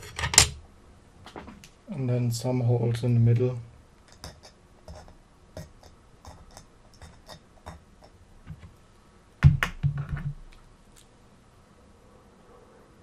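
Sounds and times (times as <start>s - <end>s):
louder knocks: 9.4s - 10.4s.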